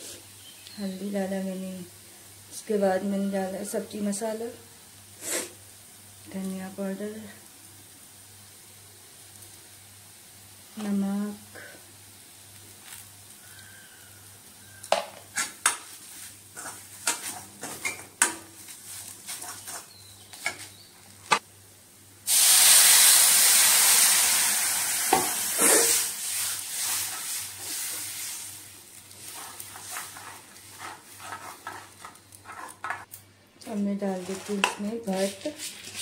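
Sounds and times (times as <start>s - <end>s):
water sizzling in hot pan: 3.4s - 19.9s, 22.2s - 32.9s
ladle scraping a pan: 29.2s - 33.1s.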